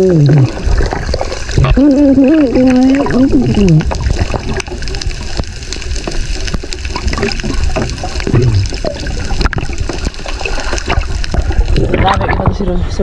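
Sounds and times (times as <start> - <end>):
underwater gurgling and clicks: 0.0 - 13.0.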